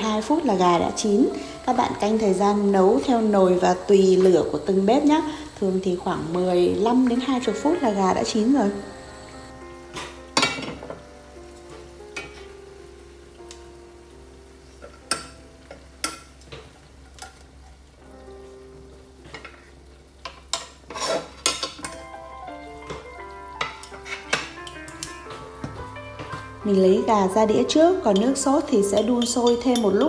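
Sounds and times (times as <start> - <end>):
sauce sizzling: 0.0 - 30.0
soft background music: 0.0 - 30.0
utensils knocking against a pan: 10.0 - 11.0, 20.2 - 22.0, 22.8 - 26.6, 28.1 - 30.0.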